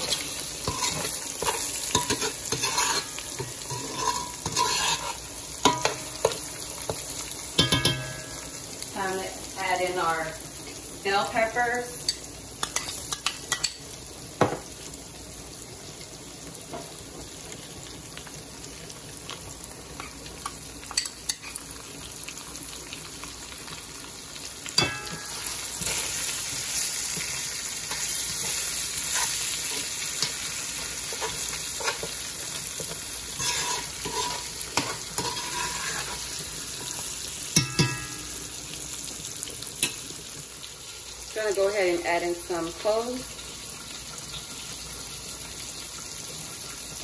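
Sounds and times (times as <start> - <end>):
sausage and peppers sizzling in oil: 0.0 - 47.0
spoon knocking against pan: 5.6 - 7.0, 7.6 - 8.4, 37.6 - 38.3.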